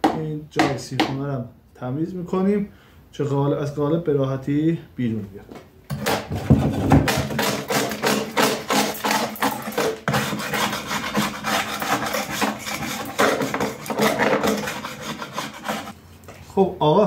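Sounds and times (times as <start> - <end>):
hammer and screwdriver chipping resin: 5.9 - 15.9.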